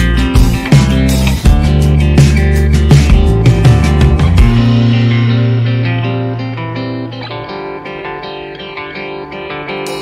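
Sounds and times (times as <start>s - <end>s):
drum hits: 0.2s - 5.4s.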